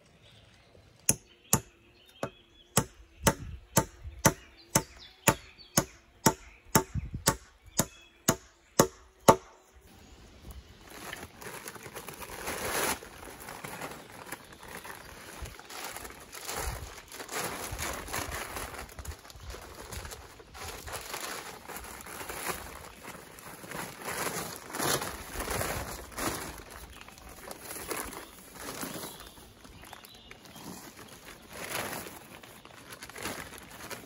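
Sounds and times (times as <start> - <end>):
sack rustling: 10.5 - 34.0.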